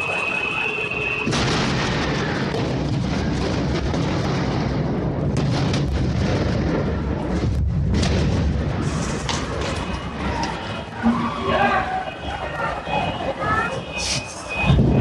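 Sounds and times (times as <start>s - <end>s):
deep rumbling explosion boom: 1.2s - 9.6s, 14.7s - 15.0s.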